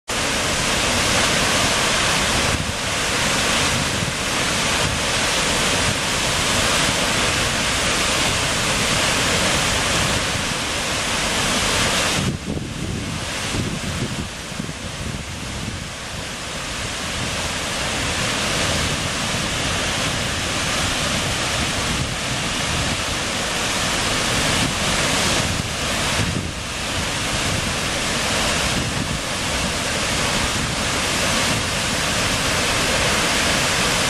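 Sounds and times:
waterfall rushing: 0.1 - 34.0.

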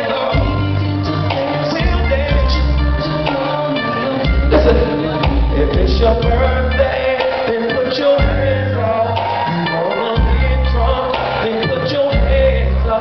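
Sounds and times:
live band music: 0.2 - 13.0
deep bass notes: 4.3 - 7.1.

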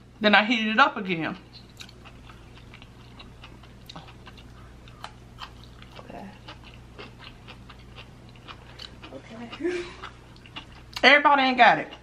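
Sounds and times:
person chewing soft food: 1.5 - 11.0.

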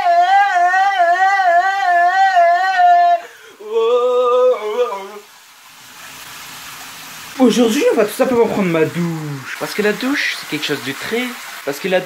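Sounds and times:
man singing with vibrato: 0.0 - 5.4.

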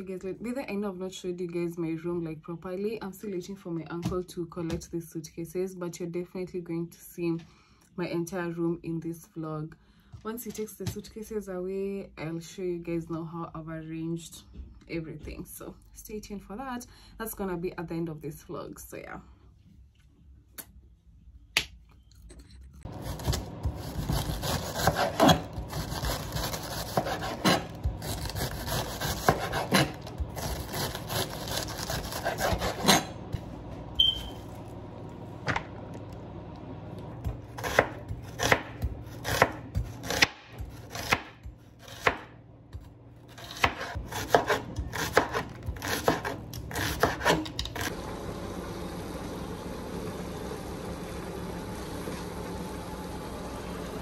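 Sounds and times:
steady low hum: 19.2 - 54.0.

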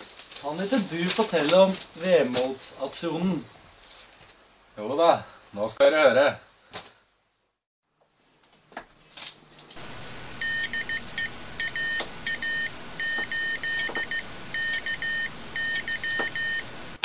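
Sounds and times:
steady hiss: 9.4 - 17.0
morse code beeping: 10.4 - 16.7.

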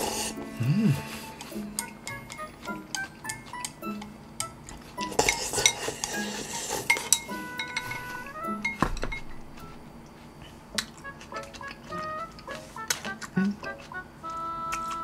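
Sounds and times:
bowl and chopsticks clinking: 1.4 - 9.9
dull thump: 8.3 - 10.0.

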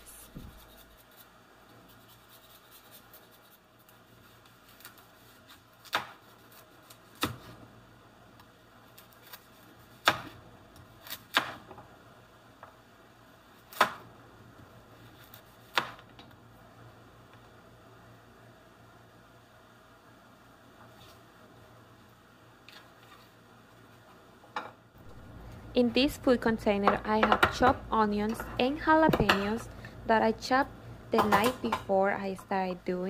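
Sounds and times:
knife chopping carrot on board: 10.0 - 10.4.

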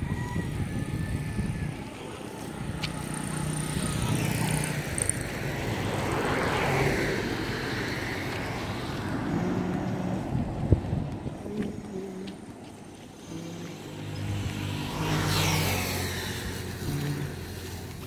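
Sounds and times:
vehicle driving past: 12.9 - 18.0.

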